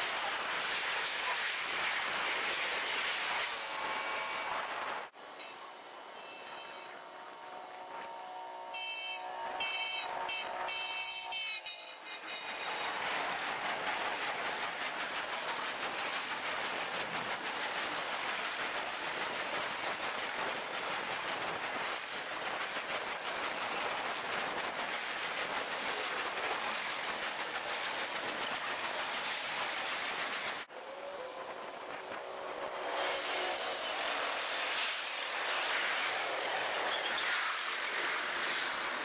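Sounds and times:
train wheels clattering: 11.3s - 30.6s.

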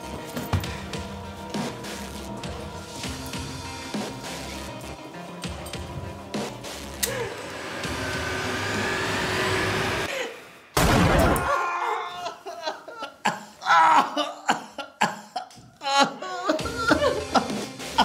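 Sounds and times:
steady swelling noise: 7.1s - 10.8s
loud hit: 10.8s - 11.5s
man laughing: 11.5s - 18.0s.

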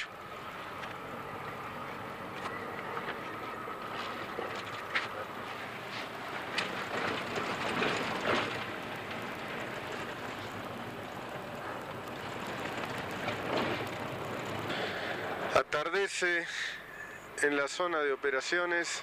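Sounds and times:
tyres on gravel and dirt: 0.0s - 17.9s
knocks and rattles: 6.4s - 14.7s.

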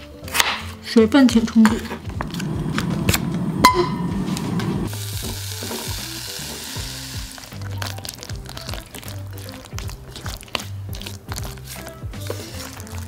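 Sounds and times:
apples sizzling in butter: 2.2s - 13.0s
wooden spatula stirring: 6.8s - 13.0s.

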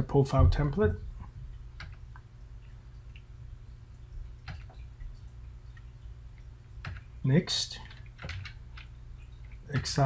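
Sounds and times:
steady low hum: 0.0s - 10.0s
keyboard keystrokes: 1.8s - 2.0s, 4.4s - 4.8s, 6.8s - 7.1s, 7.8s - 10.0s.

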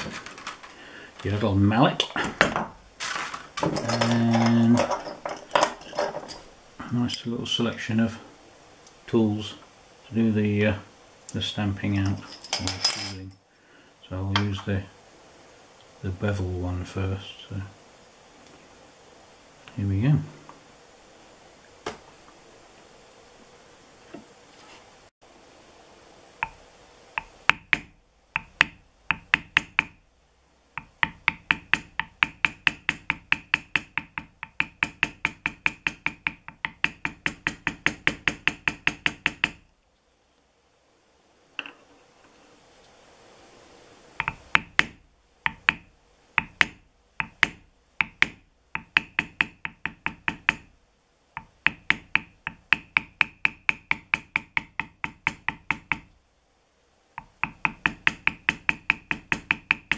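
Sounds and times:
mallet tapping leather stamp: 27.2s - 30.0s, 30.8s - 39.6s, 44.2s - 50.7s, 51.4s - 56.1s, 57.2s - 59.9s.

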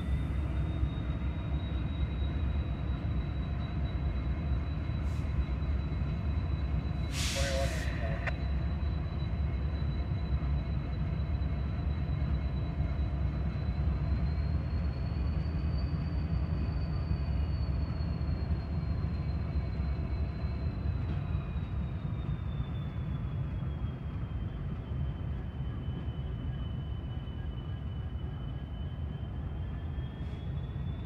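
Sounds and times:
diesel locomotives rumbling: 0.0s - 31.0s
thin high whine: 7.1s - 8.5s.

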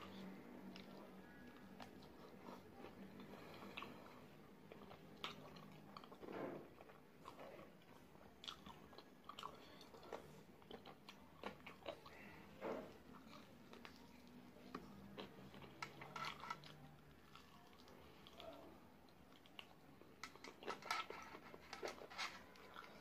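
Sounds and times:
person chewing wetly: 0.0s - 23.0s.

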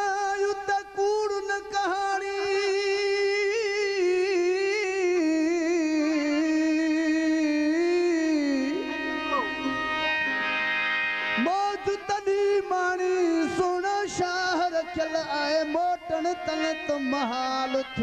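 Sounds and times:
man singing held note: 2.2s - 10.6s
faint steady drone: 8.5s - 11.5s.

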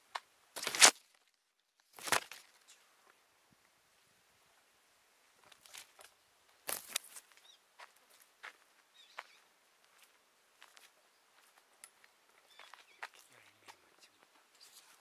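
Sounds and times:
rustling or scuffing: 0.6s - 1.2s, 5.4s - 8.6s.

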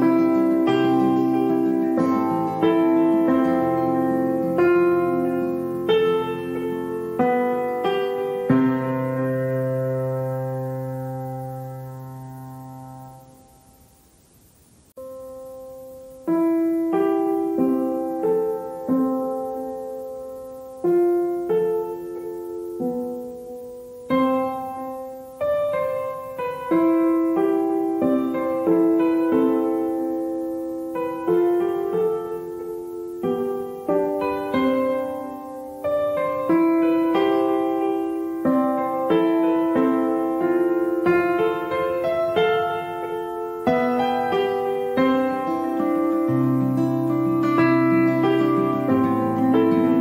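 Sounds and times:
slow piano chords: 0.0s - 50.0s.

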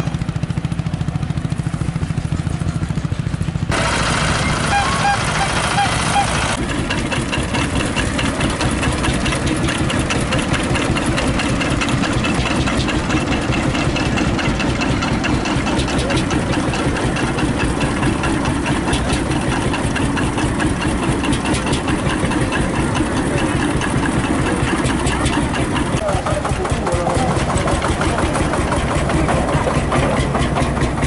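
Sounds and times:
tractor engine idling: 0.0s - 31.0s.

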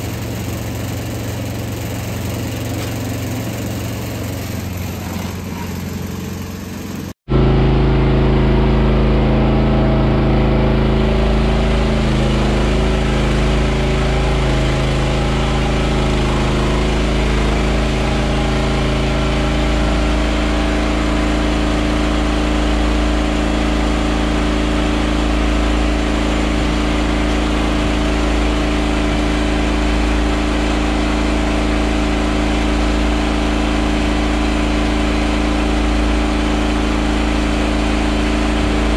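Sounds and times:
feeding cart motor humming: 0.0s - 7.5s
machine noise: 0.0s - 38.9s.

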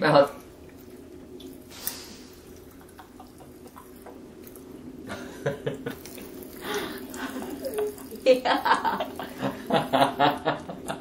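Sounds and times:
candy crackling in mouth: 0.8s - 10.2s.

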